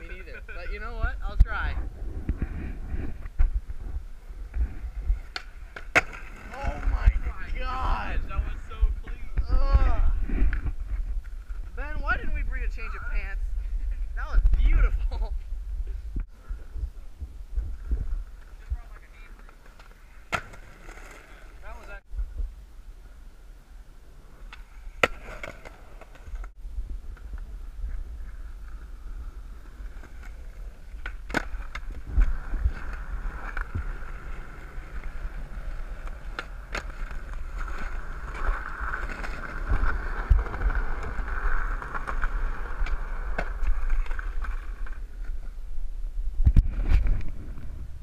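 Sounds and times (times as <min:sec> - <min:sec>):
skateboard wheels rolling on concrete: 0:00.0 - 0:48.0
skateboard popping and landing: 0:04.4 - 0:07.4, 0:18.2 - 0:21.7, 0:24.2 - 0:26.5, 0:27.1 - 0:45.6.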